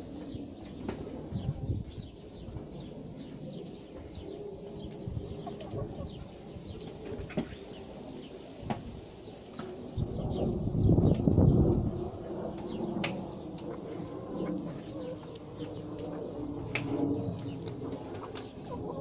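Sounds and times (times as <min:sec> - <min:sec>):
small birds chirping: 0:00.0 - 0:19.0
chickens clucking: 0:04.0 - 0:07.9, 0:12.6 - 0:19.0.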